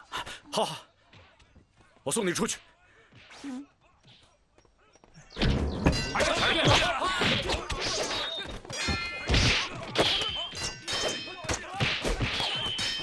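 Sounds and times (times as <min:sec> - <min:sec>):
metallic clangs: 0:05.4 - 0:13.0
thuds and blows: 0:05.4 - 0:13.0.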